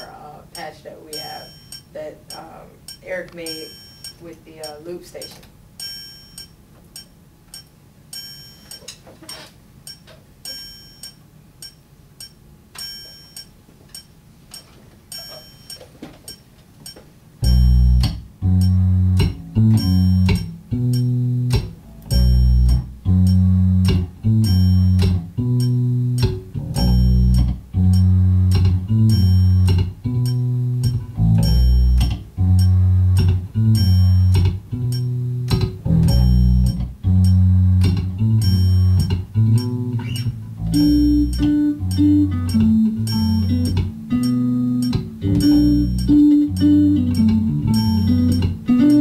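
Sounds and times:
light evenly spaced clicks: 0:00.0 - 0:09.0, 0:09.8 - 0:49.0
electric bass guitar line: 0:17.4 - 0:49.0.

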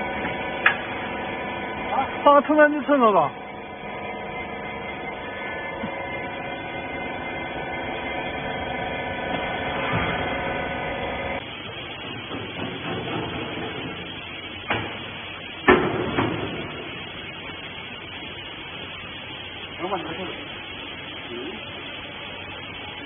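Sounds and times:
hydraulic power unit humming: 0:00.0 - 0:23.0
faint hiss: 0:11.5 - 0:23.0.

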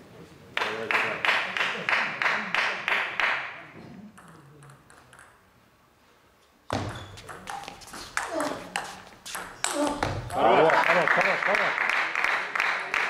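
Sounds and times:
rhythmic clapping: 0:00.6 - 0:03.5, 0:10.6 - 0:13.0.

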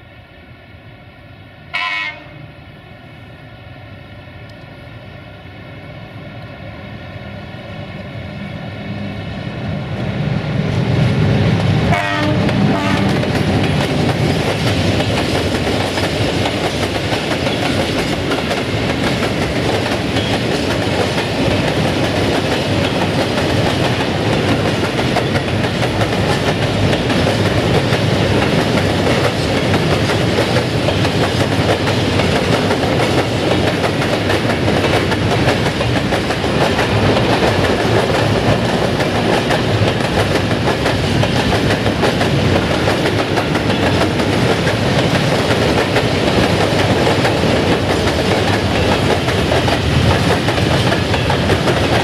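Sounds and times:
freight train wheels clattering: 0:11.4 - 0:52.0.

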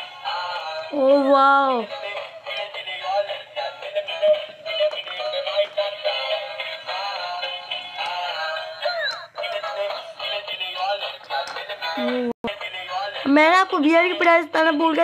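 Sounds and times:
tinny electronic toy song: 0:00.0 - 0:15.0.

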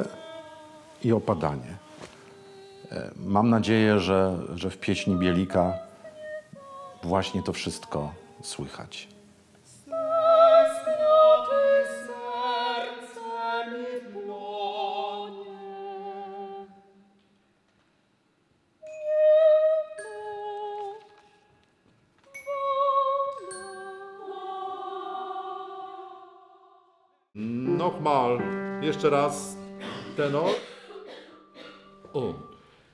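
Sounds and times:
choir singing with vibrato: 0:04.2 - 0:08.8, 0:09.8 - 0:17.2, 0:22.4 - 0:28.4.

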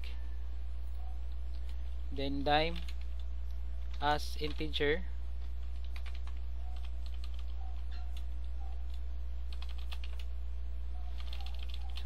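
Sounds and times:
low electrical hum: 0:00.0 - 0:12.0
typing on computer keyboard: 0:02.7 - 0:03.3, 0:03.9 - 0:04.7, 0:05.5 - 0:10.3, 0:11.1 - 0:12.0.

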